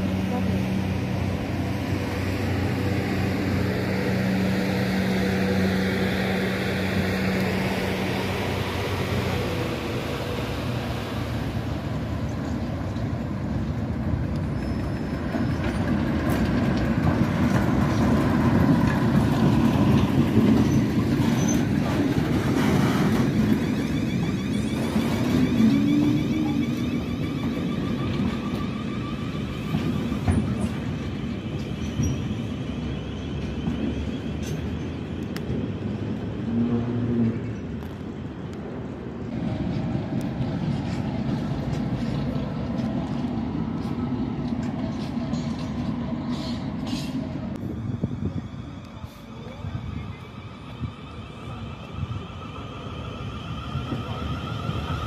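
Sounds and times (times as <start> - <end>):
diesel engine hum: 0.0 - 55.0
wagons rumbling past: 0.0 - 55.0
wheels clicking over rail joints: 11.6 - 47.7.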